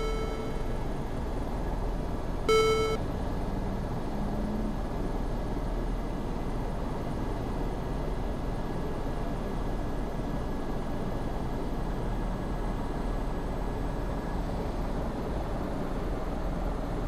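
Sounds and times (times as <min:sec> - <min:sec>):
electronic cockpit beep: 0:00.0 - 0:00.8, 0:02.5 - 0:03.0.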